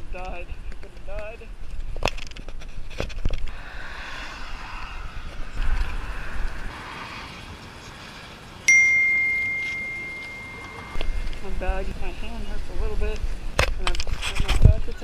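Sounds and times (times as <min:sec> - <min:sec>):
wind on microphone: 0:01.8 - 0:08.7, 0:09.8 - 0:15.0
bell-like notification ding: 0:08.7 - 0:11.3.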